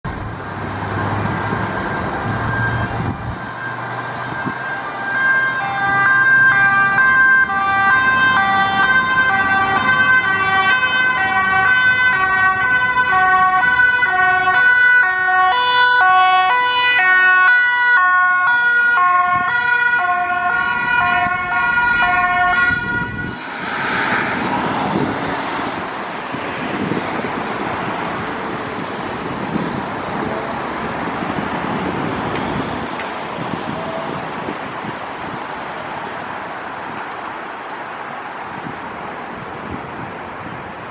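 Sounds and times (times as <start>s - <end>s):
road traffic noise: 0.0s - 40.9s
ambulance siren: 0.4s - 25.9s.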